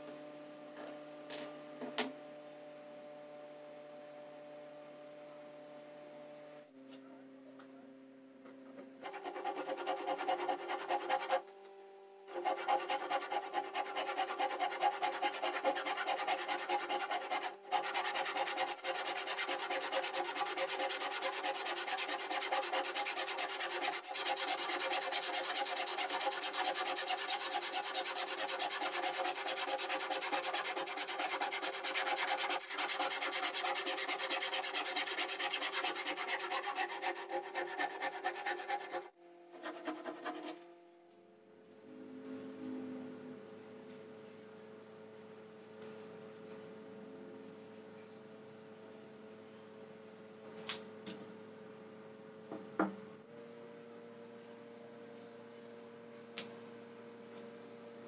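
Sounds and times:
handsaw cutting plywood: 9.0s - 11.5s, 12.3s - 40.6s.

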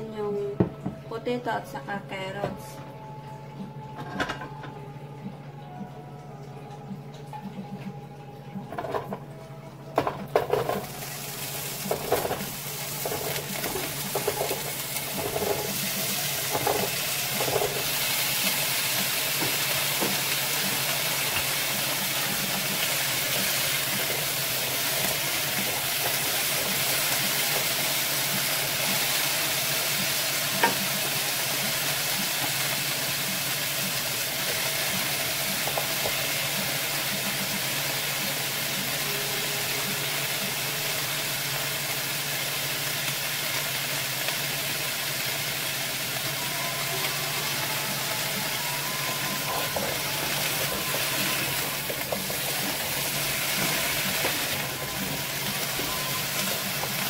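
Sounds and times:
vegetables clattering into pan: 8.7s - 9.2s, 10.0s - 37.9s, 49.1s - 57.0s
oil sizzling: 10.0s - 57.0s
wooden spatula stirring: 11.7s - 29.2s, 48.2s - 57.0s.

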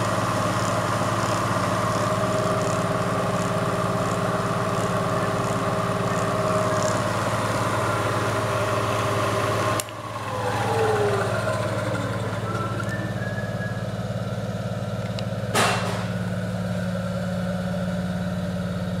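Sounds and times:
milling machine humming: 0.0s - 14.1s
falling tones: 5.0s - 14.0s.

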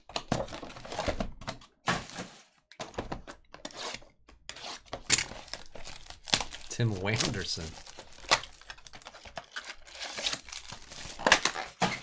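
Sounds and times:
plastic wrap rustling: 5.1s - 12.0s.

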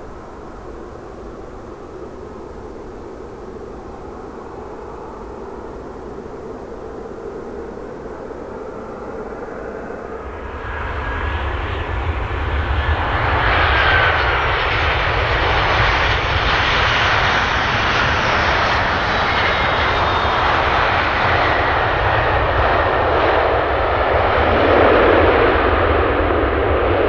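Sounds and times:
jet engines running at high power: 0.0s - 27.0s.

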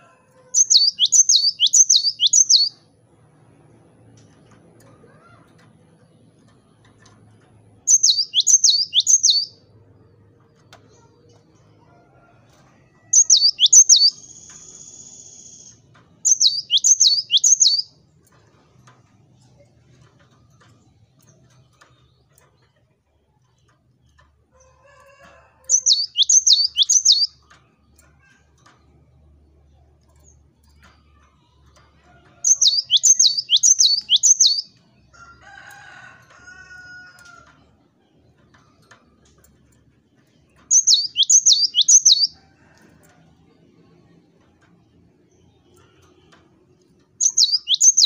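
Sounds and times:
bird singing whistled notes: 0.6s - 2.8s, 7.9s - 9.6s, 13.2s - 15.7s, 16.3s - 17.9s, 25.7s - 27.3s, 32.5s - 34.7s, 40.7s - 42.3s, 47.2s - 48.0s.

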